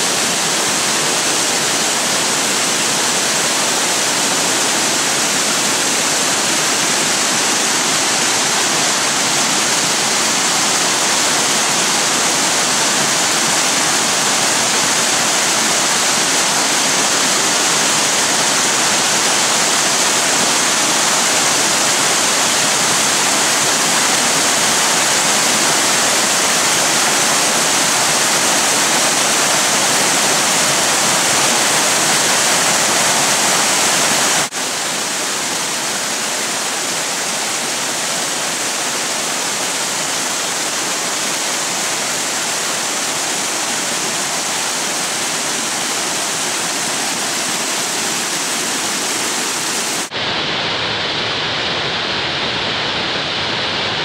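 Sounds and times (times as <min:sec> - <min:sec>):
rush of falling water: 0:00.0 - 0:54.0.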